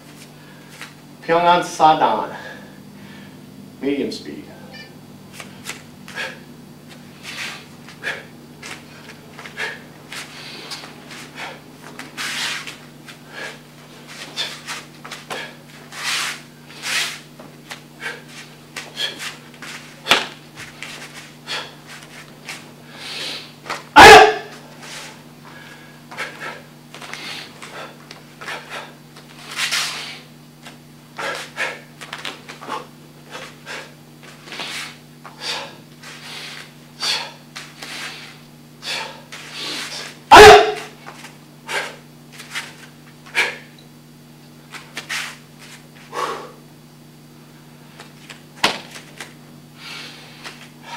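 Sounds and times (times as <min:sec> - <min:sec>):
sharp breaths: 0:05.4 - 0:06.5, 0:07.1 - 0:11.6, 0:12.2 - 0:17.2, 0:18.0 - 0:19.4, 0:21.4 - 0:22.0, 0:22.9 - 0:23.6, 0:24.8 - 0:30.3, 0:32.7 - 0:40.2, 0:46.1 - 0:46.6, 0:49.8 - 0:50.9
karate uniform swishing and snapping: 0:05.4 - 0:13.2, 0:14.0 - 0:22.7, 0:29.2 - 0:33.6, 0:39.3 - 0:43.6, 0:44.7 - 0:45.9, 0:48.0 - 0:49.4
sharp exhalations: 0:07.2 - 0:11.6
person shouting kiai: 0:24.0 - 0:24.6, 0:40.3 - 0:41.0.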